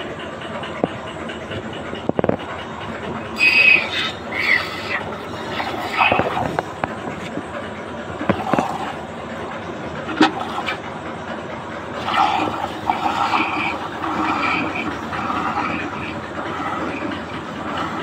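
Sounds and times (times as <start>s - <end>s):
milk squirting into steel cup: 3.4s - 6.6s.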